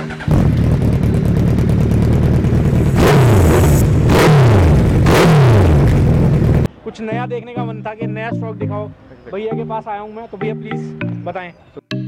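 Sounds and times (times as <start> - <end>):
motorcycle engine idling and revving: 0.0 - 6.7.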